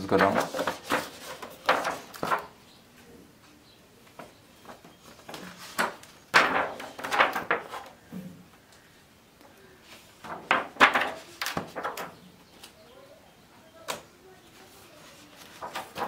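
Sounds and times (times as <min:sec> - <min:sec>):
album pages turning: 0:00.0 - 0:02.6, 0:04.1 - 0:08.1, 0:09.8 - 0:12.8, 0:13.9 - 0:16.0.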